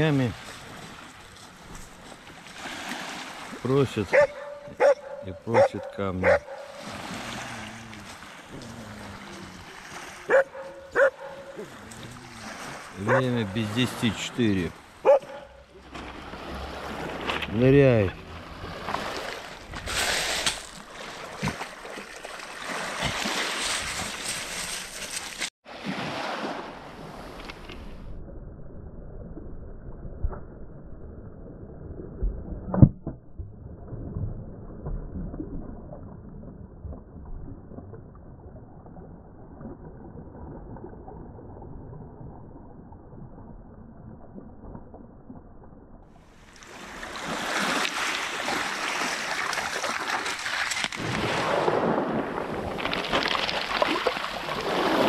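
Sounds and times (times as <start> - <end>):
waves washing over pebbles: 0.0 - 4.3, 5.3 - 15.0, 15.8 - 27.7, 46.2 - 55.0
water sloshing around dog: 0.4 - 14.0, 18.4 - 26.7, 46.6 - 51.4.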